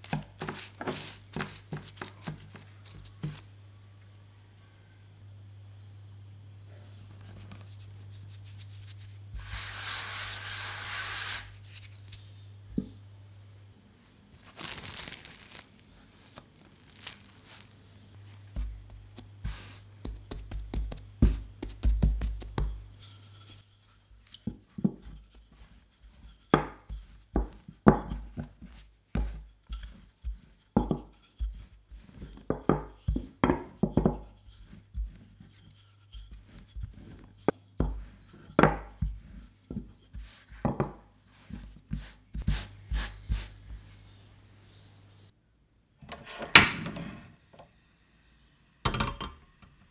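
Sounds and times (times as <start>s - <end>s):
flour sprinkled hissing: 7.2s - 12.4s, 14.3s - 38.3s, 39.0s - 44.2s
hand pressing dough thumps: 18.4s - 22.9s, 26.5s - 35.3s
rolling pin knocking on mat: 20.0s - 22.8s.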